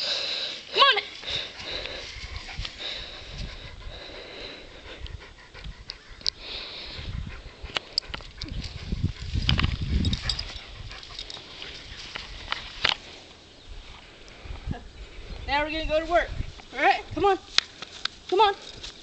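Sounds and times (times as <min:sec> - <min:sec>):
dog panting: 0:01.1 - 0:12.8.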